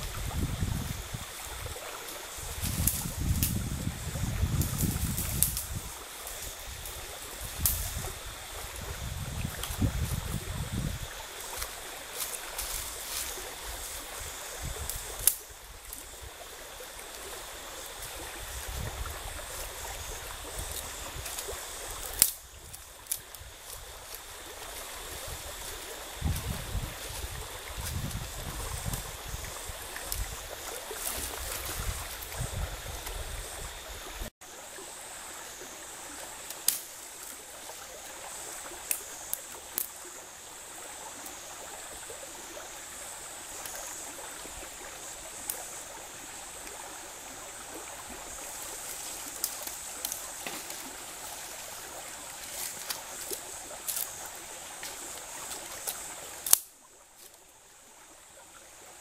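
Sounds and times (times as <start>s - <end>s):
shallow stream running: 0.0s - 59.0s
dry twigs snapping: 2.6s - 3.6s, 4.6s - 5.8s, 7.6s - 7.9s, 20.7s - 24.2s, 36.5s - 36.9s, 48.9s - 51.6s, 52.4s - 54.2s, 54.8s - 57.4s.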